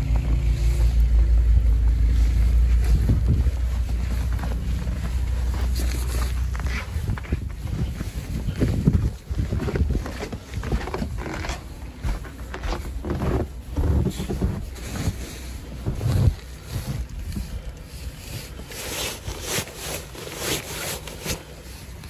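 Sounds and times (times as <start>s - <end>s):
scuffing footsteps: 0.0s - 18.2s
wind buffeting microphone: 1.4s - 5.8s, 6.4s - 18.3s.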